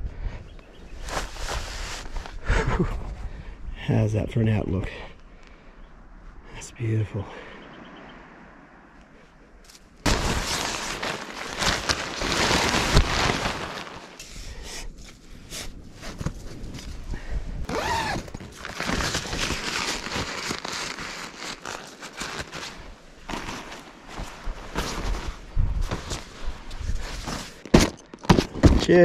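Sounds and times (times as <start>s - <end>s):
tent fabric rustling and crinkling: 1.0s - 2.4s, 9.7s - 29.0s.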